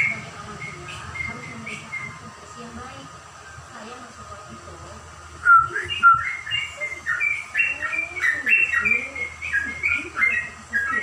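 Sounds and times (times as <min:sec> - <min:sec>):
bird singing whistled notes: 0:00.0 - 0:02.3, 0:05.4 - 0:11.0.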